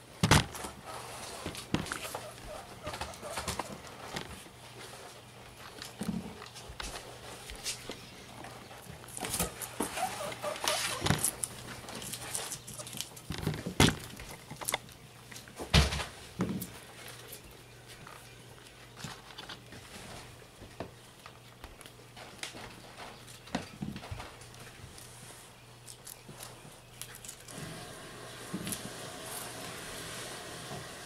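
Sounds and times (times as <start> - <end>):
guinea pigs chewing: 0.2 - 15.8, 21.1 - 30.2.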